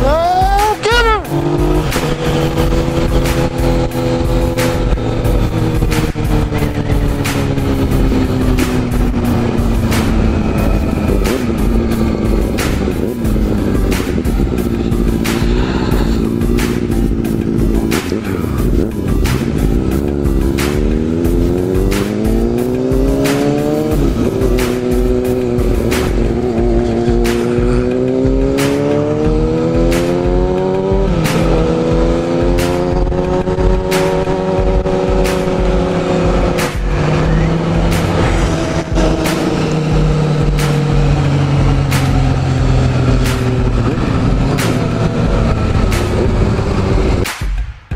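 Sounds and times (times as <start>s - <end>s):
motorcycle engine revving: 0.0s - 47.6s
background music with beat: 0.0s - 47.9s
wind rush: 35.8s - 47.3s.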